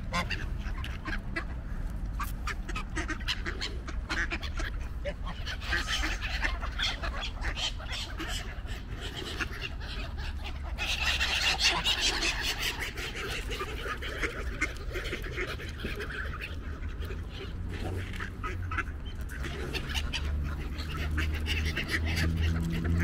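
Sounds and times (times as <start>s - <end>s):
ducks calling: 0.0s - 23.0s
geese honking: 0.0s - 23.0s.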